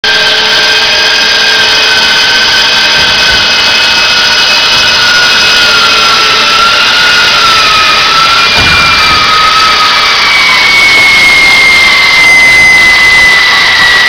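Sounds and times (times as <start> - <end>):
net winch high-pitched whine: 0.0 - 14.0.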